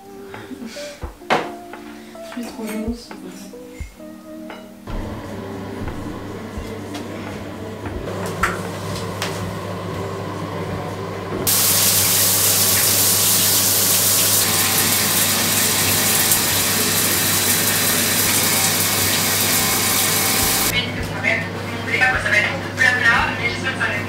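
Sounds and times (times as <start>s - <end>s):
shower spraying water: 11.5s - 20.8s.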